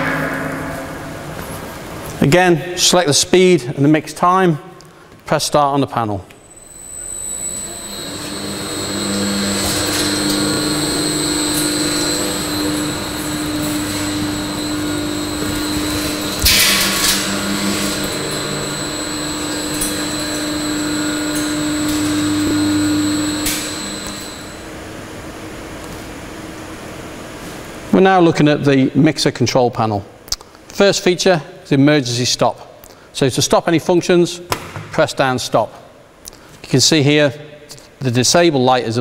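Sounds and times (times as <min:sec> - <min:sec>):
drum mixer motor humming: 0:06.4 - 0:24.7.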